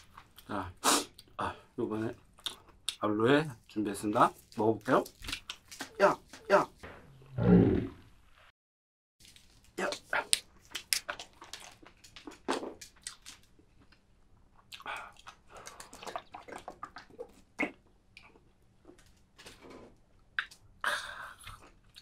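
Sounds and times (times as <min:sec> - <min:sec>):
wet eating mouth sounds: 0:10.0 - 0:18.5.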